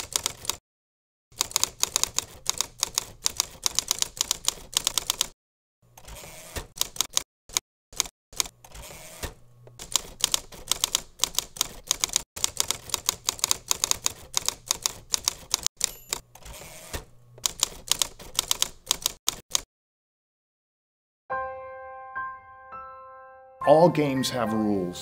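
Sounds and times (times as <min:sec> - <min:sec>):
typewriter keys clacking: 0:00.0 - 0:00.6, 0:01.4 - 0:05.3, 0:09.8 - 0:16.5, 0:17.4 - 0:19.6.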